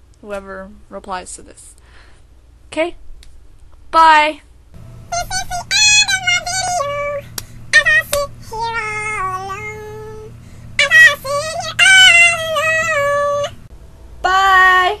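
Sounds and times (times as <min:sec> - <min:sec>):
young woman singing high notes: 0:05.1 - 0:15.0.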